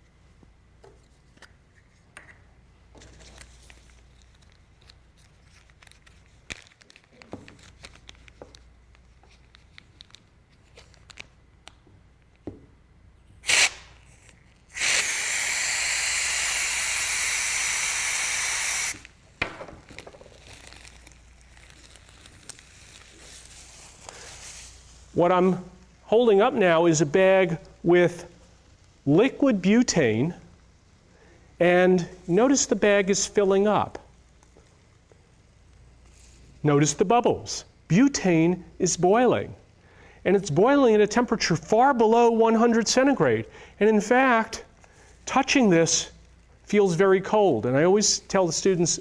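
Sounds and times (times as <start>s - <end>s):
plastic bag crinkling: 3.2s - 11.4s, 19.8s - 24.8s
gas spraying hiss: 13.4s - 14.0s, 14.7s - 19.2s.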